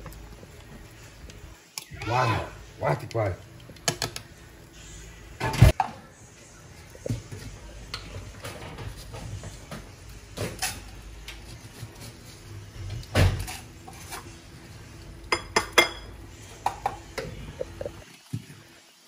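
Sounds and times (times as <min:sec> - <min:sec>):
pot of soup boiling: 0:00.0 - 0:05.4, 0:06.3 - 0:19.0
pots and dishes clattering: 0:07.0 - 0:14.4, 0:15.2 - 0:18.4.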